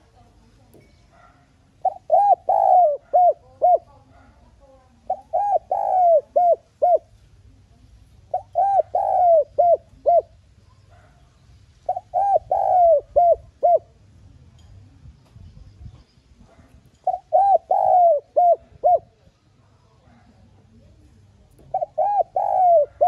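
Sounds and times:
dove cooing: 0:01.2 - 0:07.2, 0:08.2 - 0:11.1, 0:11.8 - 0:14.1, 0:16.5 - 0:19.3, 0:21.6 - 0:23.0.

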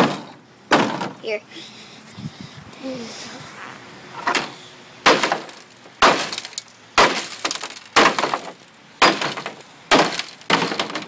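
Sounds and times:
hammer smashing phone: 0:05.1 - 0:11.0
glass and metal fragments crunching: 0:05.2 - 0:11.0.

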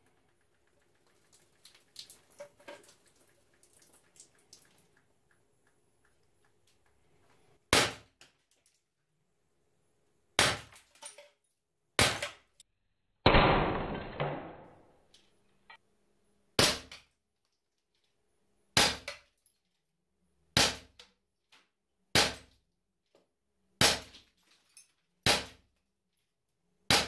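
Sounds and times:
air pistol shots: 0:13.3 - 0:14.9.

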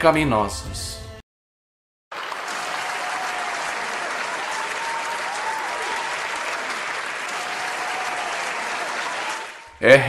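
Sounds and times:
crowd applause: 0:02.1 - 0:09.8.

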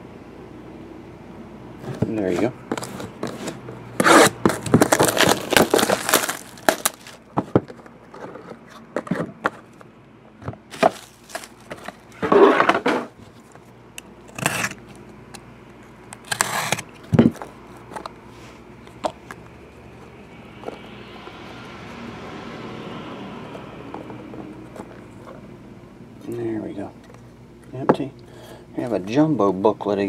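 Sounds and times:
plastic wrapper crinkling and tearing: 0:02.7 - 0:07.3, 0:10.7 - 0:12.2.

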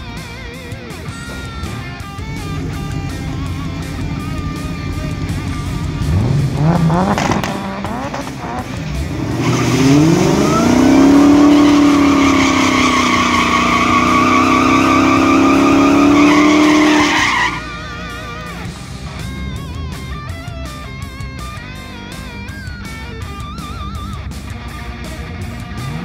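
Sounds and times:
car engine revving: 0:00.0 - 0:26.0
tire squealing in a burnout: 0:01.0 - 0:20.3.

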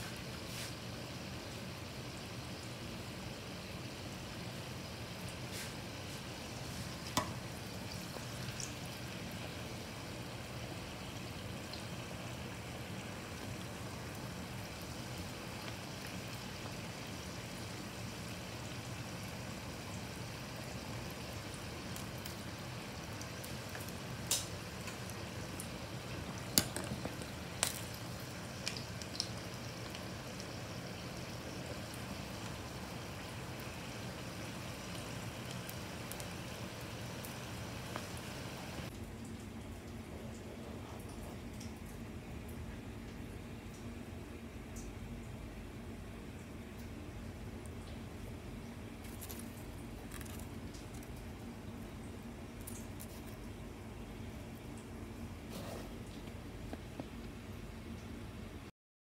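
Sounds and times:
food sizzling in hot oil: 0:00.0 - 0:38.9.

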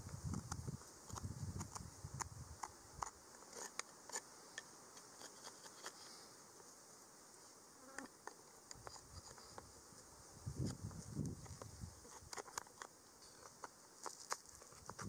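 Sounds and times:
small clicks and ticks: 0:00.0 - 0:06.0, 0:10.7 - 0:15.0
faint insect buzz: 0:00.0 - 0:15.0.

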